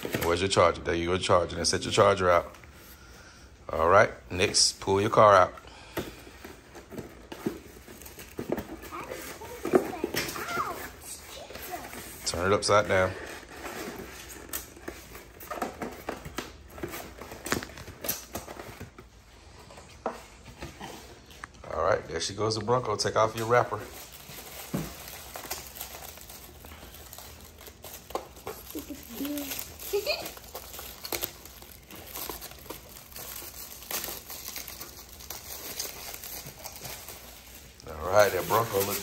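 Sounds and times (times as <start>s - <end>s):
cardboard and plastic packaging rustling: 0.0s - 0.7s, 3.8s - 21.7s, 22.7s - 39.0s
plastic wrapper crinkling: 7.1s - 19.0s, 23.2s - 39.0s.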